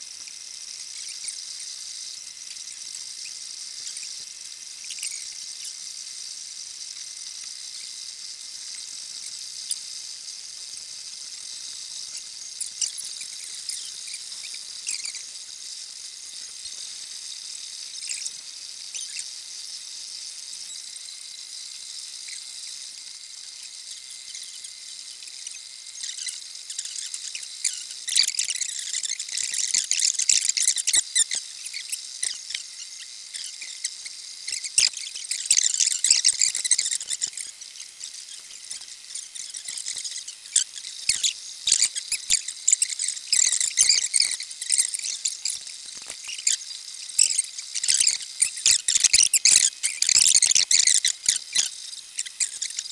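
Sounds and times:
faint steady whine: 0:00.0 - 0:52.9
printer motors chirping and squealing: 0:12.0 - 0:15.4, 0:18.0 - 0:19.3, 0:25.4 - 0:52.9.

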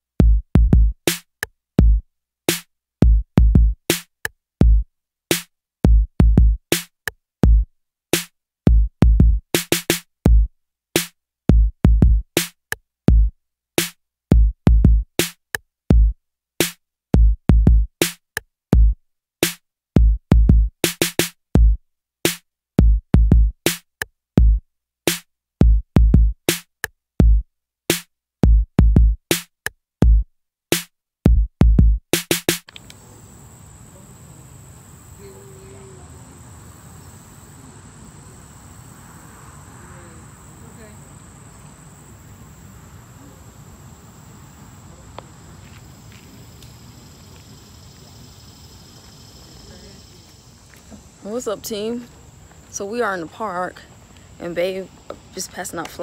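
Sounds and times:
drum machine beat: 0:00.2 - 0:18.2, 0:18.8 - 0:32.7
crickets chirping: 0:32.7 - 0:56.0.

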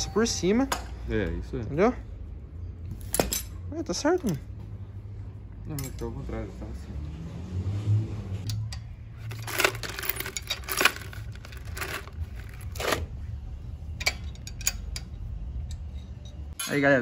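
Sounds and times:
wrench clinking on metal: 0:14.0 - 0:17.0.

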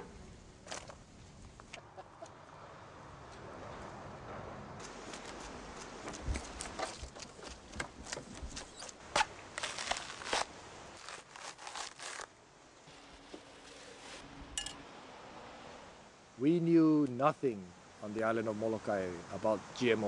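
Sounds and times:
coconut husk cracking and tearing: 0:06.4 - 0:12.4.

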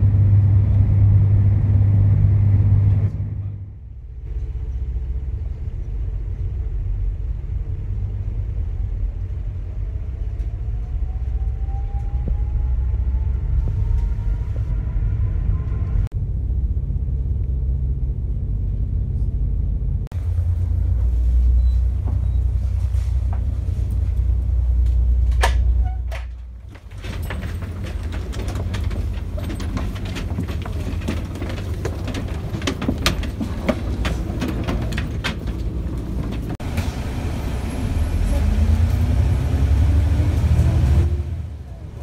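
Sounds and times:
deep engine rumble: 0:00.0 - 0:42.0
knocks and clatters: 0:20.1 - 0:37.0.

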